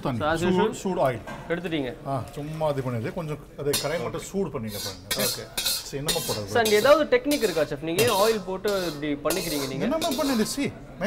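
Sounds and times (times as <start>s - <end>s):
man talking: 0.0s - 6.6s, 9.1s - 10.8s
wok and utensils clinking: 3.7s - 10.7s.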